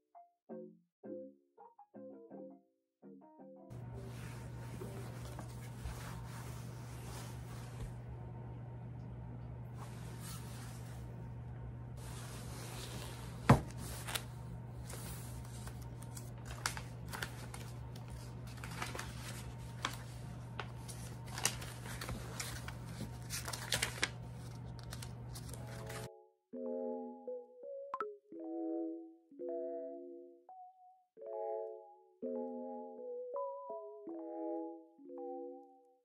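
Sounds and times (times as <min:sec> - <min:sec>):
steady low hum: 0:03.7 - 0:26.1.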